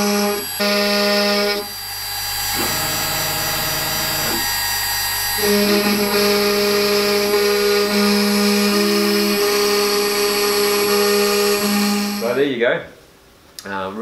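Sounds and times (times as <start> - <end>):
cnc router whining: 0.0 - 12.4.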